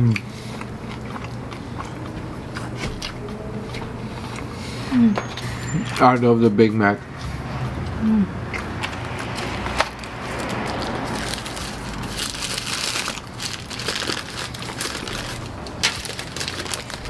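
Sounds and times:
person chewing: 0.0s - 6.0s, 7.2s - 17.0s
paper wrapper crinkling: 9.8s - 17.0s.

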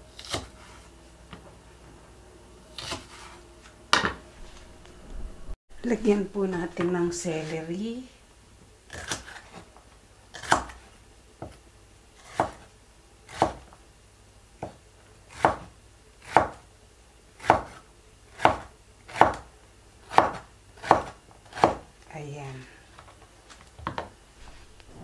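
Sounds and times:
knife slicing celery on board: 0.1s - 0.9s, 2.7s - 3.4s, 8.9s - 9.7s, 10.4s - 10.9s, 12.2s - 12.7s, 13.3s - 13.7s, 14.6s - 16.6s, 17.4s - 17.8s, 18.4s - 19.5s, 20.1s - 21.9s.

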